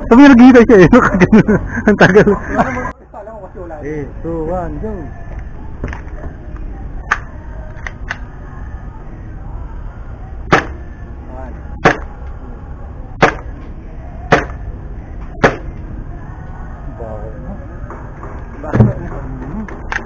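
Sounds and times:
airsoft pistol shots: 0:10.5 - 0:10.8, 0:13.2 - 0:13.5.

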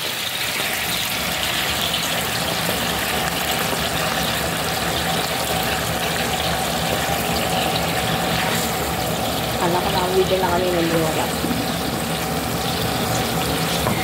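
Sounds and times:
broth boiling in a wok: 0:00.0 - 0:14.0.

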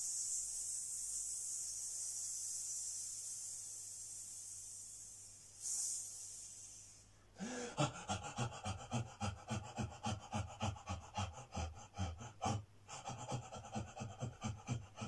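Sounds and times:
man panting rhythmically: 0:07.3 - 0:15.0.

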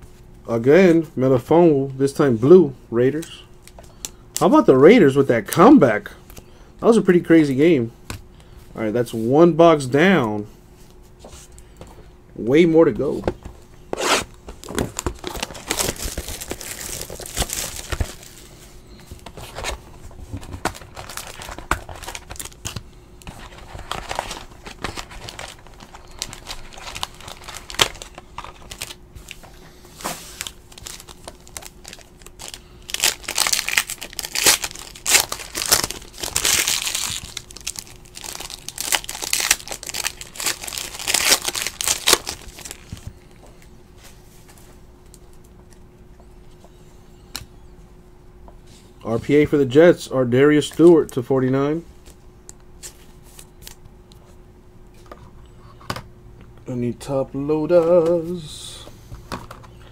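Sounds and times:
foil wrappers crinkling and tearing: 0:14.6 - 0:43.3.

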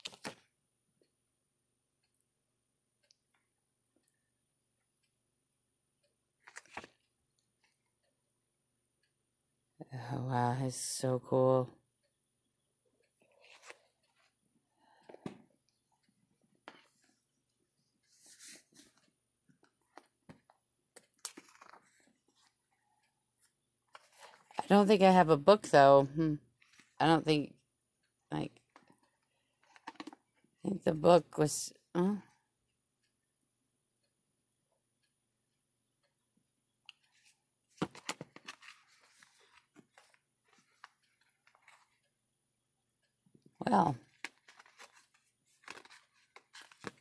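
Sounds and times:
cards clicking and rustling: 0:00.0 - 0:00.5, 0:06.4 - 0:07.1, 0:19.6 - 0:22.4, 0:29.6 - 0:30.3, 0:37.8 - 0:42.1, 0:44.1 - 0:47.0
paper sliding rustle: 0:18.0 - 0:19.0
cards ticking and sliding in box: 0:44.1 - 0:47.0.

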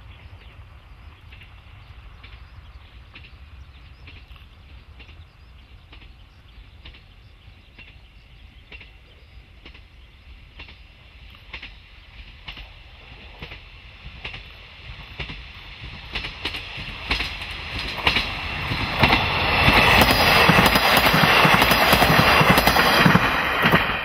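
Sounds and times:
distant diesel railcar rumble: 0:00.0 - 0:24.0.

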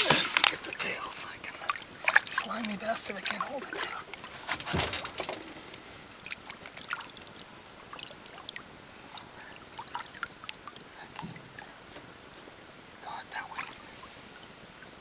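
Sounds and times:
water dripping: 0:00.0 - 0:04.3, 0:05.1 - 0:11.7
water splashing and trickling: 0:00.0 - 0:15.0.

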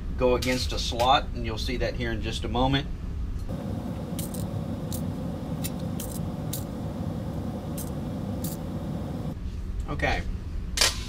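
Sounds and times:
steady low hum: 0:01.0 - 0:10.8
screws and washers clicking: 0:04.1 - 0:06.7.

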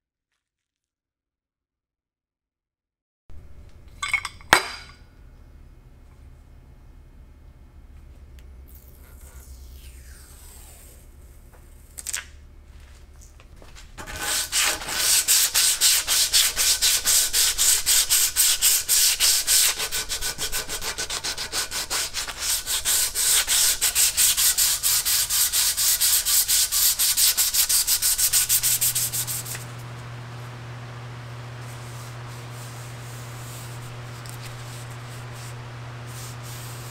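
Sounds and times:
sandpaper rubbing on wood: 0:14.0 - 0:29.7, 0:31.6 - 0:36.9.

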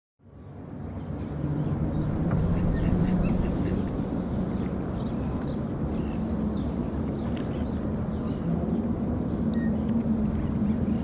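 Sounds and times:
sparrows chirping: 0:00.3 - 0:11.0
steady low hum: 0:00.3 - 0:11.0.

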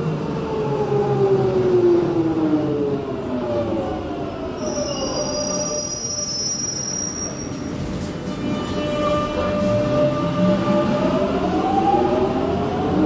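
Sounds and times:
high wheel squeal: 0:04.6 - 0:09.3.

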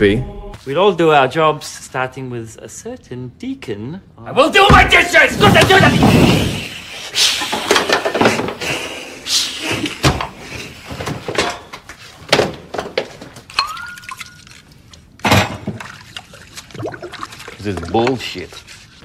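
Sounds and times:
dishes crashing and clattering: 0:07.5 - 0:08.6, 0:15.3 - 0:15.8.

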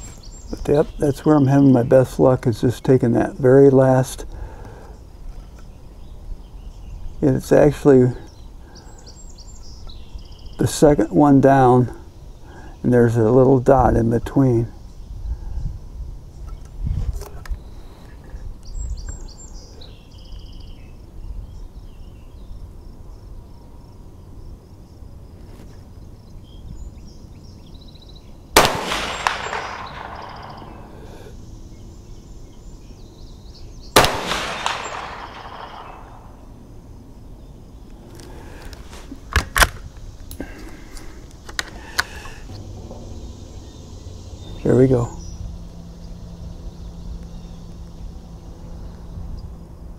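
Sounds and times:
rifle shots: 0:28.6 - 0:31.0, 0:34.0 - 0:36.4.

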